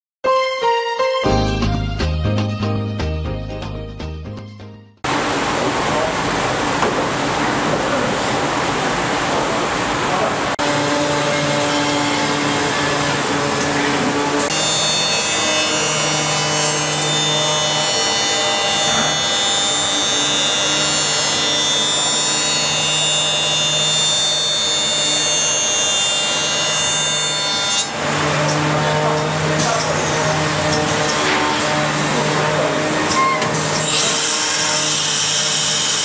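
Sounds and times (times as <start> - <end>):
router spindle whining: 10.6 - 34.6
cnc machine humming and whirring: 10.6 - 36.0.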